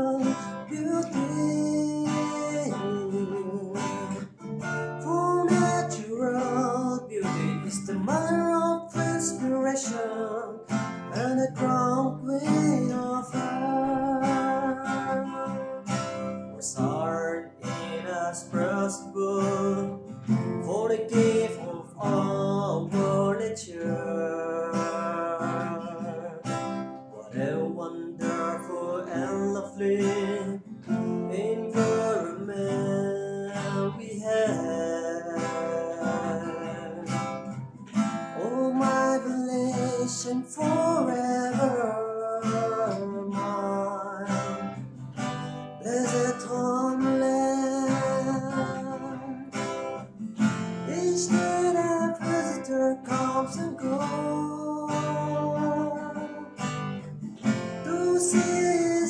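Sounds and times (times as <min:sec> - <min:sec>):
acoustic guitar strumming: 0:00.0 - 0:59.0
man singing: 0:00.0 - 0:59.0.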